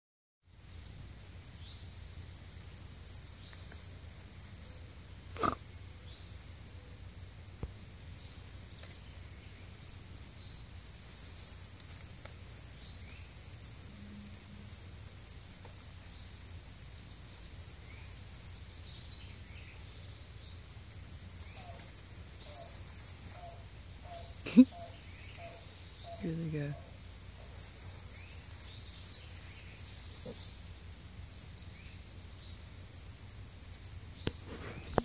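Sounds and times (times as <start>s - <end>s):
high-pitched insect drone: 17.3s - 27.2s.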